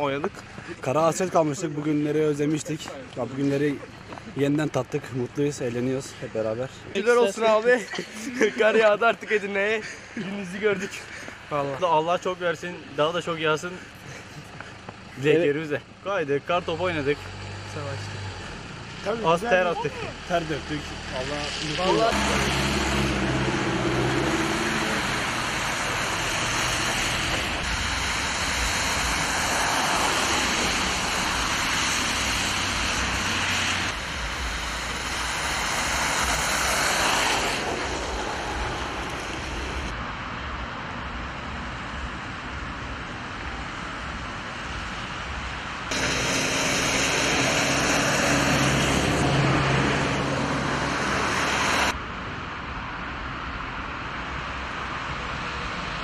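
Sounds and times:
traffic noise hiss: 0:00.0 - 0:56.0.

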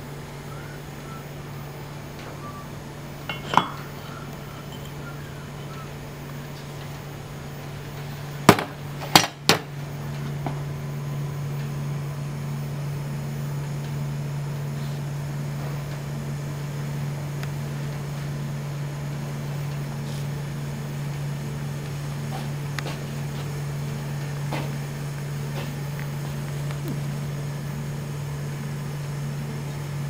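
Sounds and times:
low machinery hum: 0:00.0 - 0:30.0
tongs clanking against metal mould: 0:03.3 - 0:04.1.

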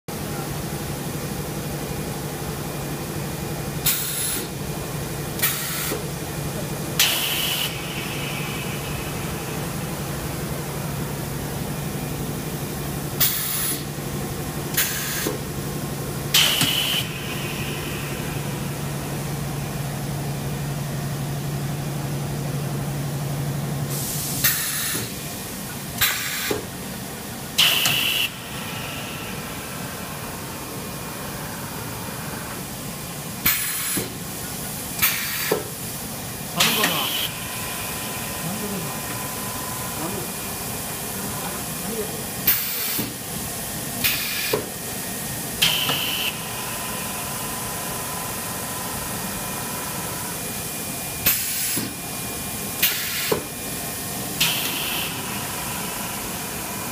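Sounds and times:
steady machine hum: 0:00.1 - 0:56.9
sharp pneumatic air blasts: 0:03.8 - 0:04.5, 0:05.4 - 0:06.1, 0:07.0 - 0:08.5, 0:13.2 - 0:13.9, 0:14.7 - 0:15.4, 0:16.3 - 0:18.0, 0:23.9 - 0:25.2, 0:26.0 - 0:26.7, 0:27.6 - 0:28.4, 0:33.4 - 0:34.2, 0:35.0 - 0:35.8, 0:42.5 - 0:43.2, 0:44.0 - 0:44.7, 0:45.6 - 0:46.4, 0:51.2 - 0:52.0, 0:52.8 - 0:53.5, 0:54.4 - 0:55.3.

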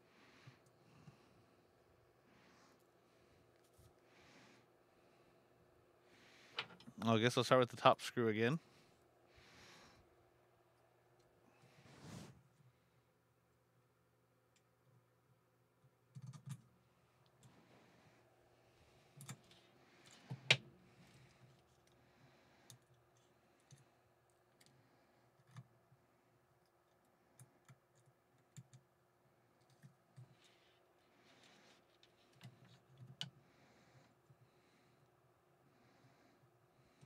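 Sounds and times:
clicks of handling small parts: 0:06.5 - 0:06.9.

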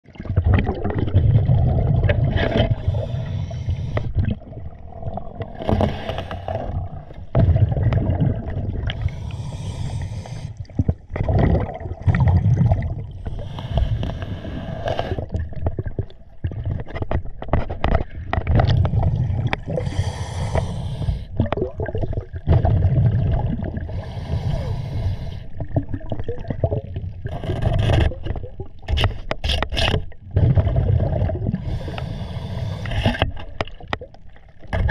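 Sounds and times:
exhaled bubbles gurgling: 0:00.0 - 0:29.0, 0:30.0 - 0:34.9
regulator hissing inhalations: 0:02.8 - 0:04.1, 0:09.0 - 0:10.6, 0:13.2 - 0:15.2, 0:19.8 - 0:21.3, 0:23.9 - 0:25.5, 0:31.6 - 0:33.2
light scrapes and clicks: 0:05.5 - 0:06.7, 0:16.8 - 0:19.6, 0:27.3 - 0:30.1, 0:32.8 - 0:34.0.

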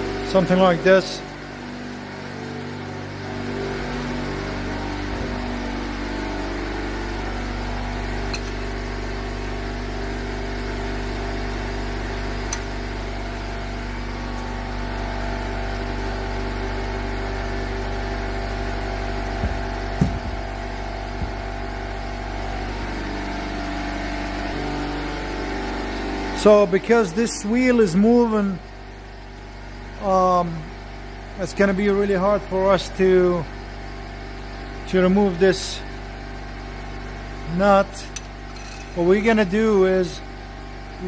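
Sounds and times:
machine hum: 0:00.0 - 0:41.0
sharp metal clanks: 0:08.2 - 0:08.6.

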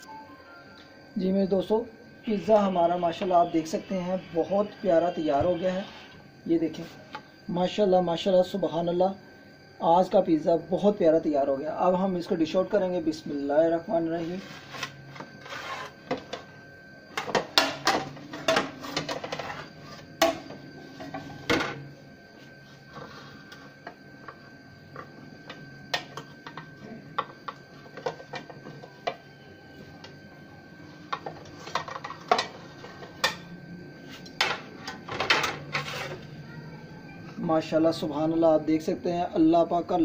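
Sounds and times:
metal spatula scraping pan: 0:15.4 - 0:16.0.

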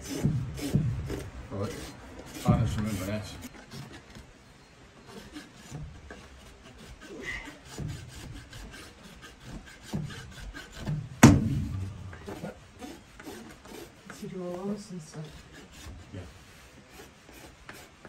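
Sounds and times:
hoof rasp scraping: 0:00.0 - 0:18.0
loud metal clank: 0:11.2 - 0:12.2.

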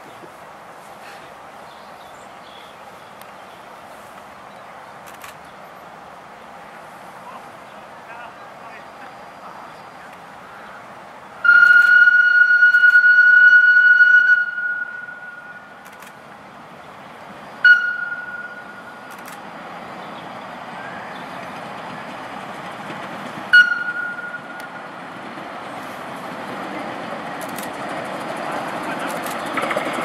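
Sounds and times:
train running noise: 0:00.0 - 0:30.0
steam locomotive whistle: 0:11.4 - 0:15.8, 0:17.6 - 0:19.0, 0:23.5 - 0:24.8.

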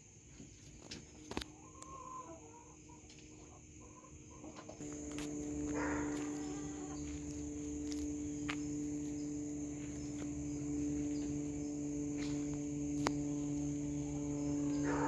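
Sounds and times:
insects trilling: 0:00.0 - 0:15.0
steady low hum: 0:04.7 - 0:15.0
clicks: 0:04.8 - 0:13.9.

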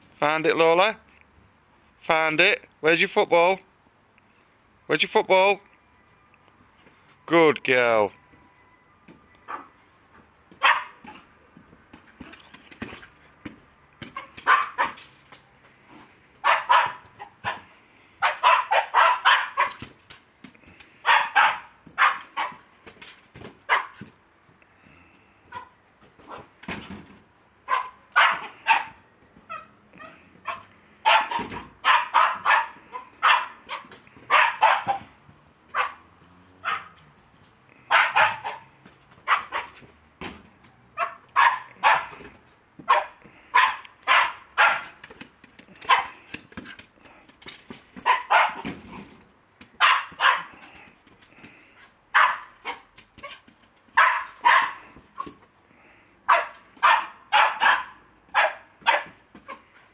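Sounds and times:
dog barking: 0:09.5 - 0:09.7, 0:10.6 - 0:11.1, 0:14.2 - 0:15.0, 0:16.4 - 0:19.8, 0:21.0 - 0:22.6, 0:23.7 - 0:24.0, 0:27.7 - 0:35.1, 0:35.7 - 0:37.0, 0:37.9 - 0:39.8, 0:41.0 - 0:42.2, 0:42.8 - 0:45.0, 0:45.8 - 0:46.2, 0:48.0 - 0:48.7, 0:49.8 - 0:50.6, 0:52.1 - 0:52.9, 0:54.0 - 0:55.3, 0:56.3 - 0:59.6.

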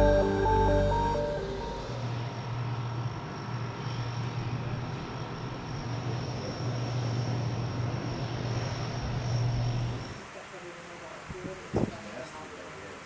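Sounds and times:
turbine whine and drone: 0:00.0 - 0:10.4.

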